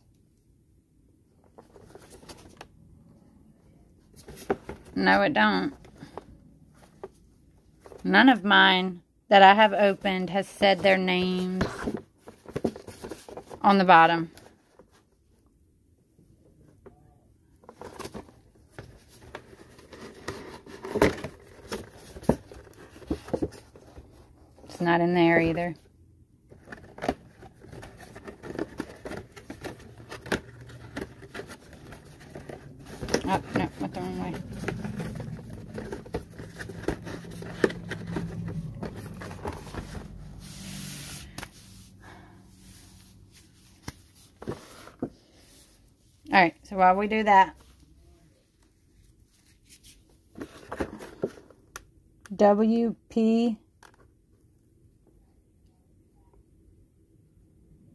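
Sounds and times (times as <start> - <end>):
low hum: 29.3 - 43.4.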